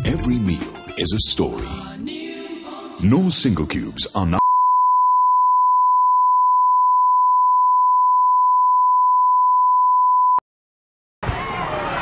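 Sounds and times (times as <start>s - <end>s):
sine test tone: 4.4s - 10.4s.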